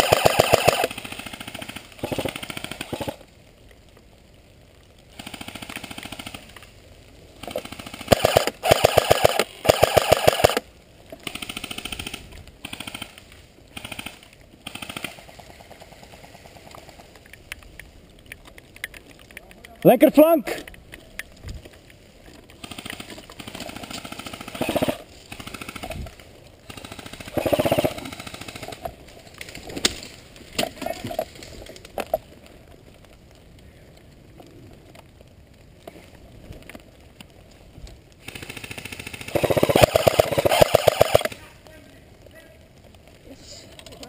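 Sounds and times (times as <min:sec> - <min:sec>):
airsoft gun full-auto bursts: 0:00.0 - 0:03.2, 0:05.1 - 0:06.5, 0:07.4 - 0:10.6, 0:11.2 - 0:16.3, 0:22.6 - 0:26.0, 0:26.6 - 0:28.8, 0:38.2 - 0:41.4.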